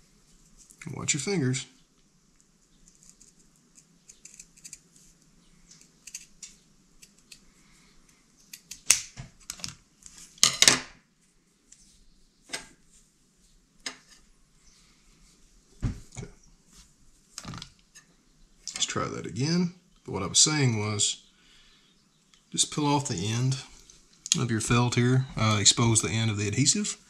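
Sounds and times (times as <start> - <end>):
faint handling rustle: 11.2 - 18.1.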